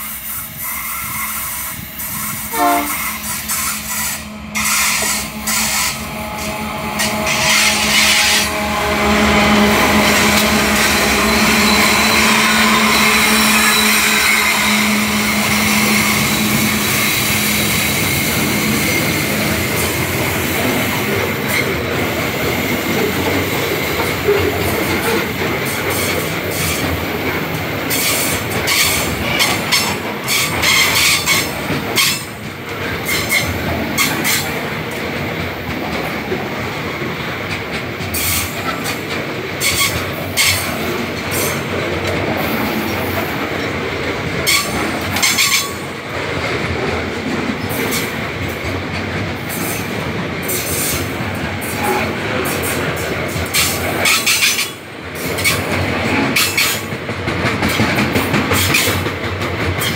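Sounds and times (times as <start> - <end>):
train wheels clattering on rails: 0.0 - 59.9
locomotive engine drone: 1.5 - 25.7.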